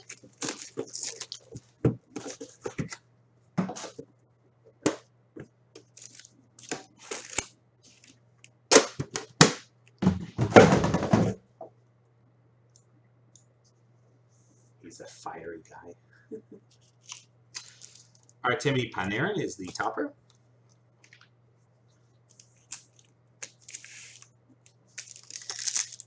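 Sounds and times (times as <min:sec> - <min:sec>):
plastic wrapping crinkling: 0:00.0 - 0:02.6, 0:05.8 - 0:08.1, 0:16.7 - 0:18.4, 0:22.3 - 0:26.0.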